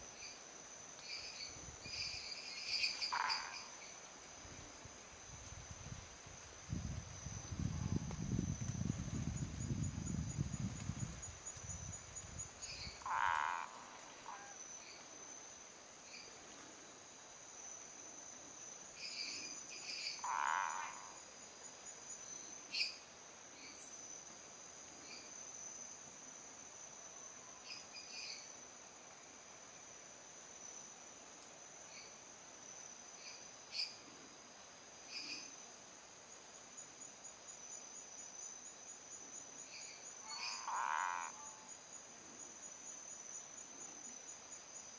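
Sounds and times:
loud tree frog call: 0:01.9 - 0:04.0, 0:12.6 - 0:15.0, 0:20.0 - 0:21.2, 0:40.1 - 0:41.8.

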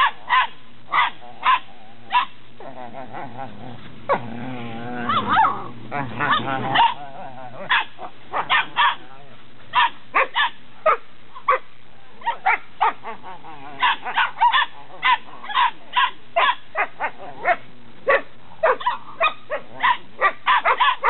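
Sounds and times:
puppies barking and yipping: 0:05.1 - 0:07.0, 0:07.6 - 0:09.0, 0:09.7 - 0:11.6, 0:13.8 - 0:21.0.

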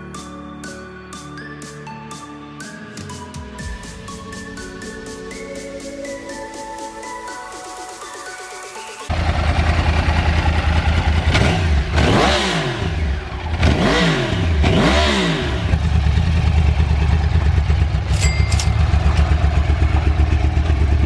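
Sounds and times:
motorcycle engine idling: 0:09.1 - 0:14.4, 0:15.5 - 0:21.0
engine revving: 0:09.1 - 0:21.0.

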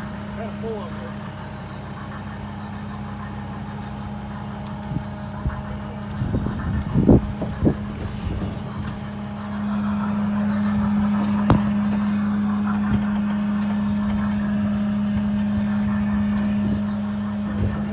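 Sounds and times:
machine hum: 0:00.0 - 0:17.9
thumps: 0:11.2 - 0:11.8.

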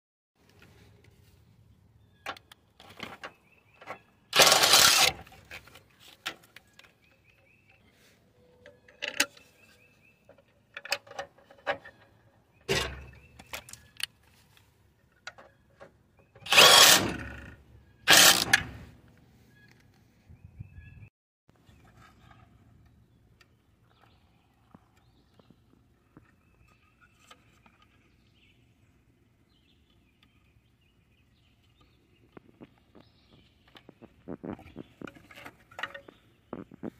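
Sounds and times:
cordless power tool bursts: 0:04.3 - 0:05.4, 0:16.4 - 0:18.9.

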